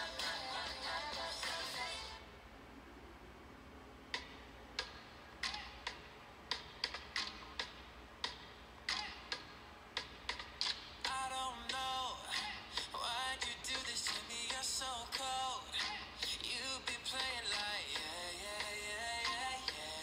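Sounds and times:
music with a voice: 0:00.0 - 0:02.2, 0:11.1 - 0:20.0.

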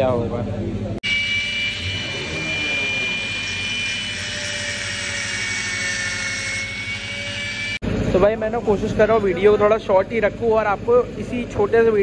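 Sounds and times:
angle grinder cutting metal: 0:01.0 - 0:07.8.

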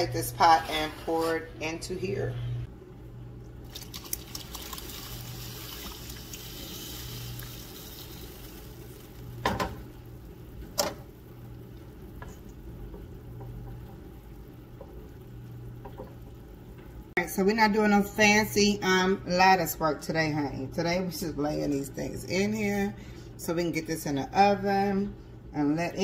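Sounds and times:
syrup sloshing pour: 0:03.6 - 0:09.3.

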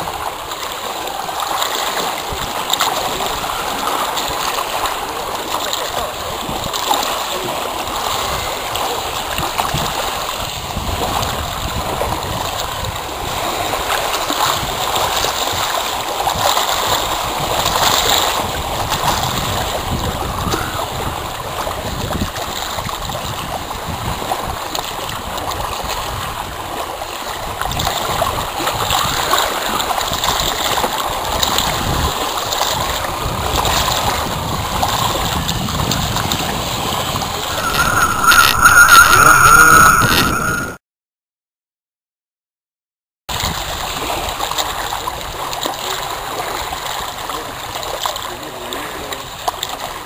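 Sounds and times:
small waves splashing: 0:00.0 - 0:38.7, 0:43.3 - 0:50.0
wind buffeting microphone: 0:01.3 - 0:40.8.

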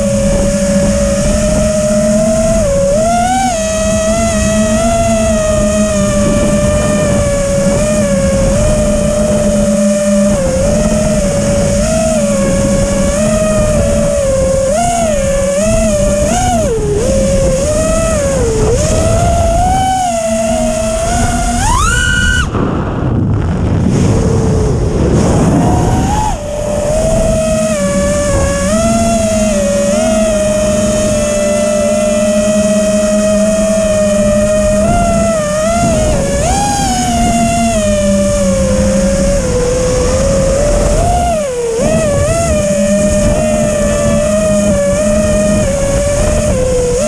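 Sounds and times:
drone motors whining: 0:00.0 - 0:47.0
rush of air: 0:21.0 - 0:28.7.

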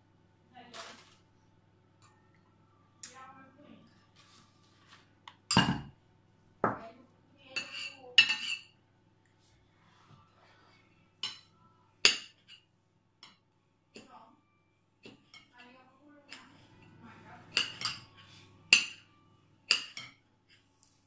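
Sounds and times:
cutlery clinking against ceramic bowls: 0:05.4 - 0:05.9, 0:07.5 - 0:08.8, 0:11.2 - 0:13.4, 0:16.3 - 0:19.1, 0:19.7 - 0:20.2.

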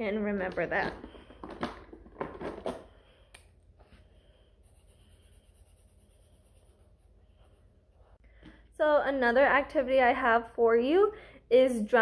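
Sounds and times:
low room hum: 0:00.0 - 0:11.7.

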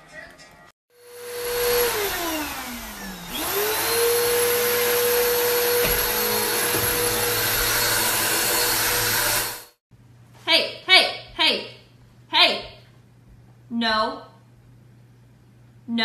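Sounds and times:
vacuum cleaner motor whine: 0:00.9 - 0:09.8.

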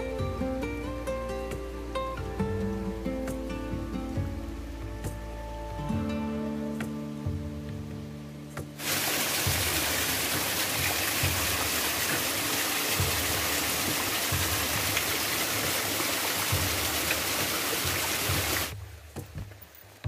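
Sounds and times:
water splashing down rocks: 0:08.8 - 0:20.0.

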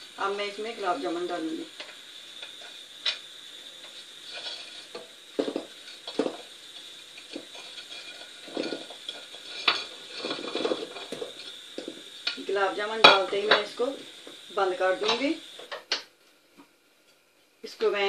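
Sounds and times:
syrup bubbling: 0:01.8 - 0:12.4.

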